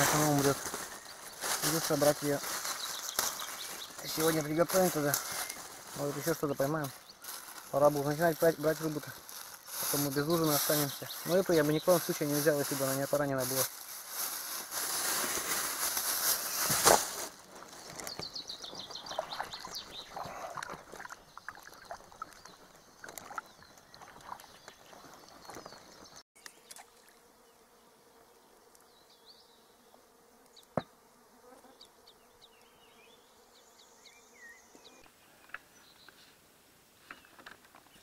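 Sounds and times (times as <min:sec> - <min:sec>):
faint insect buzzing: 0:00.0 - 0:17.5, 0:26.4 - 0:35.7.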